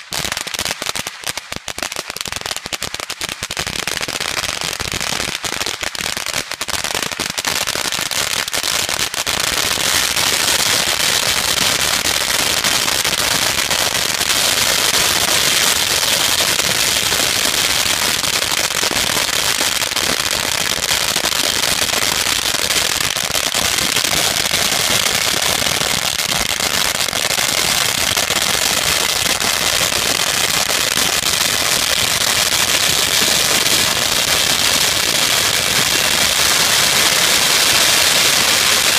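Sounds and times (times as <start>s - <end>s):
firecrackers crackling: 0.0s - 38.9s.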